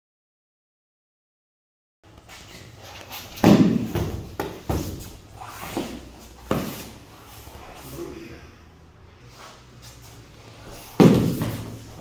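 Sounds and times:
bodies thumping on foam mats: 3.3s - 7.0s, 10.6s - 12.0s.

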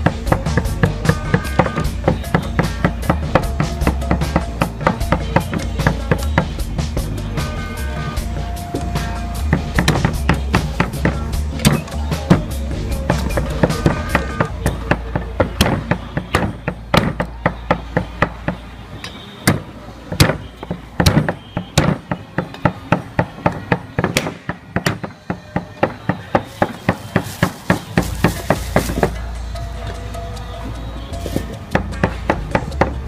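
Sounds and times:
cleaver chopping on wooden block: 0.0s - 6.6s, 9.5s - 18.6s, 19.4s - 29.2s.

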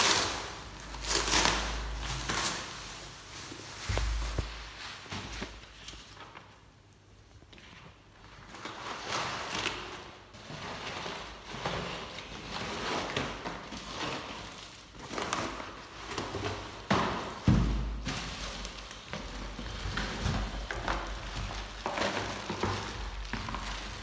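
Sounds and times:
plastic bag crinkling: 0.0s - 6.4s, 18.0s - 24.0s
loud thump: 3.9s - 4.6s.

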